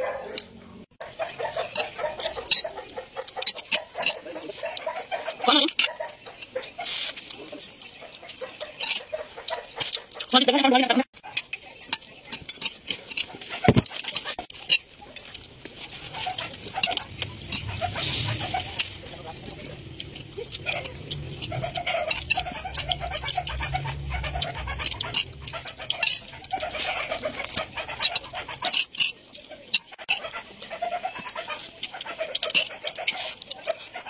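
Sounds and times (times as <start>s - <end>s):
chewing: 0.0s - 34.0s
metal spoon scraping ceramic bowl: 11.4s - 30.3s
low rumble: 16.6s - 26.6s.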